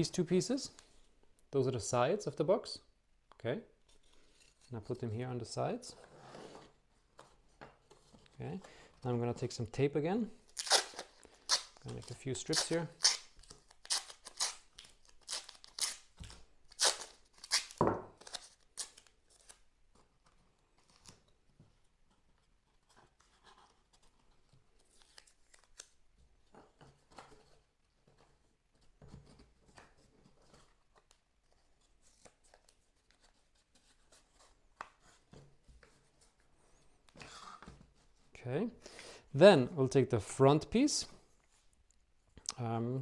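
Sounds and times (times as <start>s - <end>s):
adhesive tape ripping off roll: 10.5s - 11.8s, 12.4s - 19.6s
tape strips tearing: 10.5s - 19.6s.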